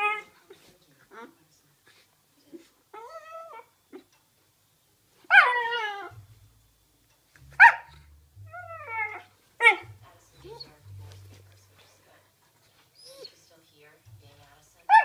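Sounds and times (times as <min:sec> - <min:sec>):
dogs yipping and whining: 0:00.0 - 0:00.3, 0:02.9 - 0:04.1, 0:05.3 - 0:06.2, 0:07.6 - 0:07.9, 0:08.5 - 0:10.8, 0:12.6 - 0:13.4.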